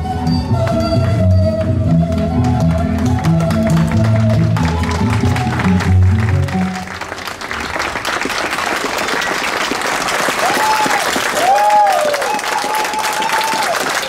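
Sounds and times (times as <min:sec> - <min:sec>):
audience applauding: 0:00.6 - 0:14.0
crowd calling out: 0:10.4 - 0:14.0.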